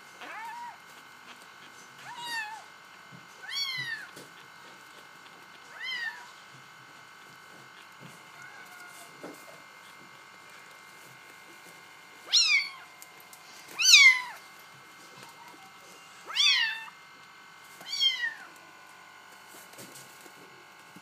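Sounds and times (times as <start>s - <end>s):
kitten meowing: 0.2s - 0.8s, 2.0s - 2.7s, 3.4s - 4.2s, 5.7s - 6.3s, 12.3s - 12.9s, 13.8s - 14.4s, 16.3s - 17.0s, 17.8s - 18.5s.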